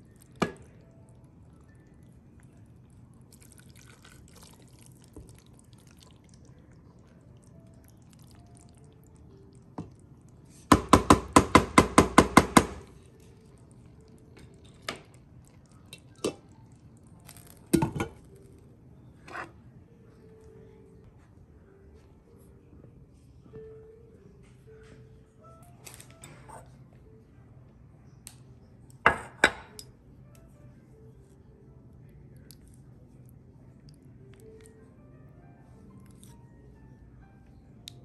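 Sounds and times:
spoon scraping food into a mug: 19.2 - 19.5.

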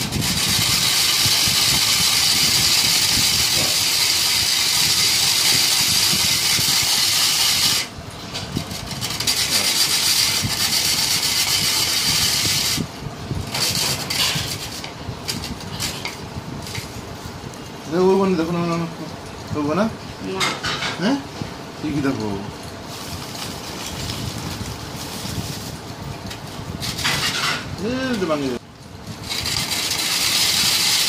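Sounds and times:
loud steady hiss: 0.0 - 8.0.

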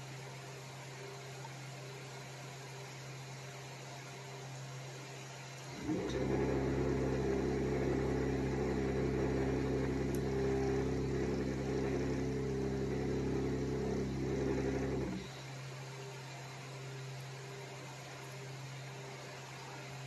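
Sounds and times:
foam cutter machine hum: 5.7 - 16.3.

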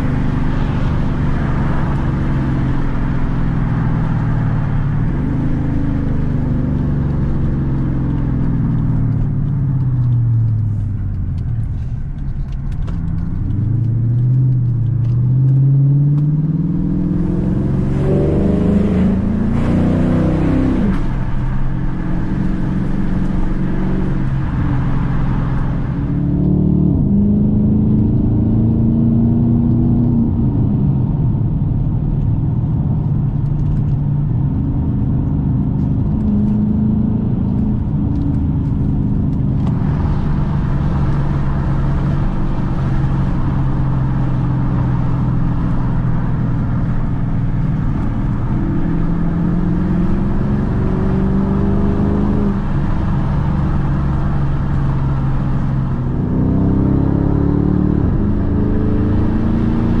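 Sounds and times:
car engine accelerating: 0.0 - 60.0
road and wind noise: 0.0 - 60.0.

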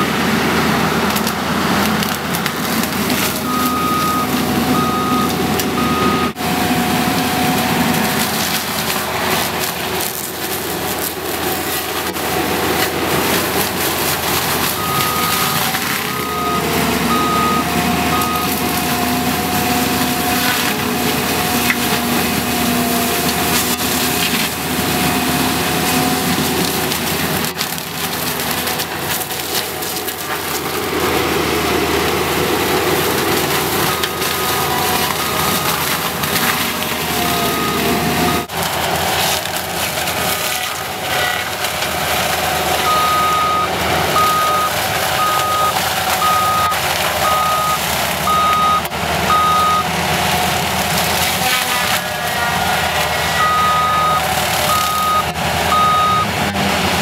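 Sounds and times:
loader engine drone: 0.0 - 57.0
wood being shredded: 0.0 - 57.0
backup alarm beeping: 3.4 - 6.4, 14.8 - 18.6, 33.8 - 35.9, 37.4 - 38.5, 42.8 - 49.9, 53.4 - 56.4.

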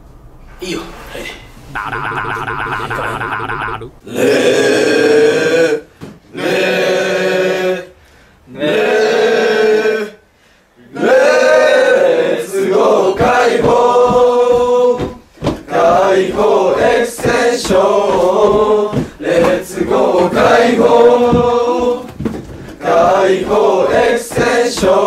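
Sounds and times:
men chanting: 1.8 - 5.8.

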